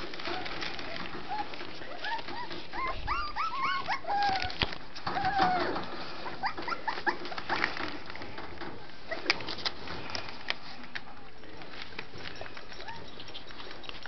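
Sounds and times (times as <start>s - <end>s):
puppies whimpering: 0.2s - 7.8s, 12.2s - 14.0s.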